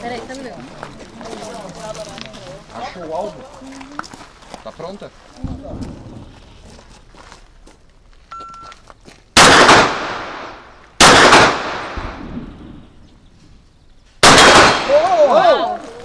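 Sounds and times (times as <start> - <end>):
shot timer beep: 8.3 - 8.7
pistol shots echoing: 9.4 - 12.8, 14.2 - 15.1.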